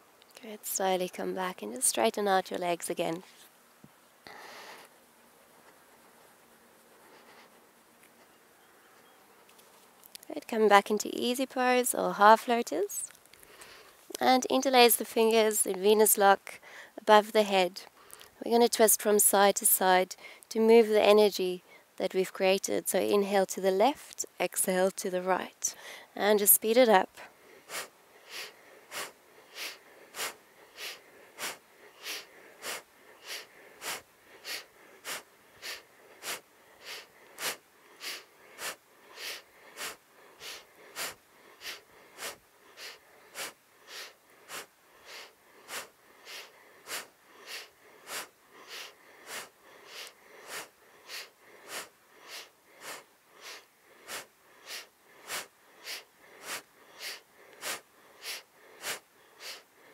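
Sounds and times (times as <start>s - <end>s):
woman breathing rhythmically: 4.2s - 5.0s, 5.6s - 9.0s, 13.3s - 14.1s, 16.5s - 17.0s, 17.8s - 18.4s, 20.1s - 20.5s, 25.6s - 26.2s, 27.1s - 59.9s.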